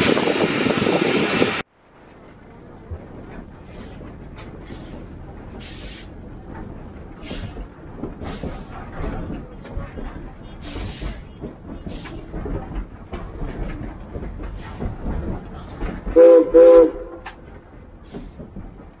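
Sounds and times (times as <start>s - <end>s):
steam locomotive running: 0.0s - 19.0s
steam whistle blasts: 16.2s - 17.3s.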